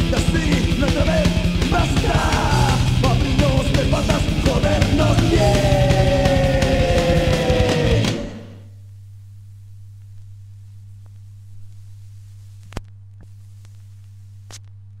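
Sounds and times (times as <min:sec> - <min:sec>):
thrash metal music: 0:00.0 - 0:08.6
low electrical hum: 0:08.6 - 0:15.0.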